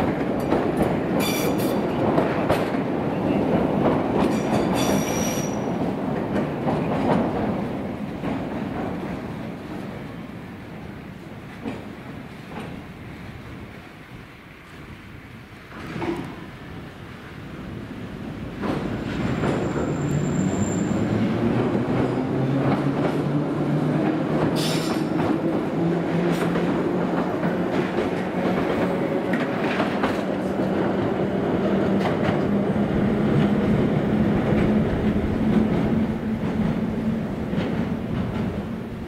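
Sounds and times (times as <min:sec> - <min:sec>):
high wheel squeal: 0:04.8 - 0:05.7, 0:19.5 - 0:21.1.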